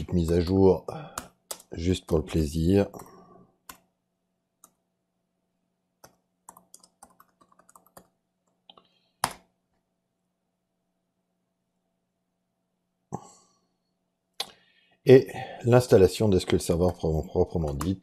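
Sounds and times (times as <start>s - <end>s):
keyboard typing: 1.1s - 1.8s, 6.0s - 9.5s, 16.5s - 18.0s.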